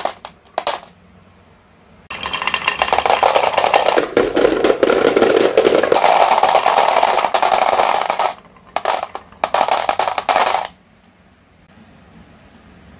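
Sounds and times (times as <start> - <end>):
marbles clicking into plastic: 0.0 - 0.9, 2.1 - 10.8
marbles rolling on wood: 0.0 - 1.0, 2.1 - 10.8.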